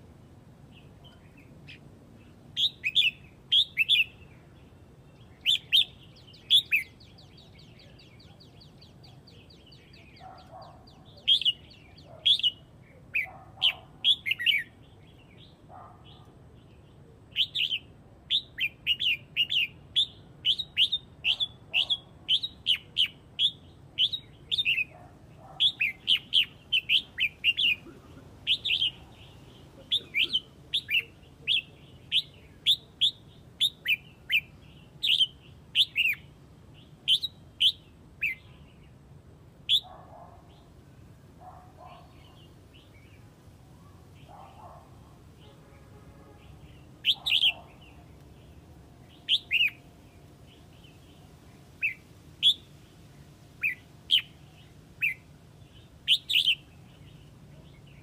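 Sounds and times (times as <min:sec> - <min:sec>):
bird chirping sharply: 0:46.3 - 0:49.9, 0:56.0 - 0:57.1.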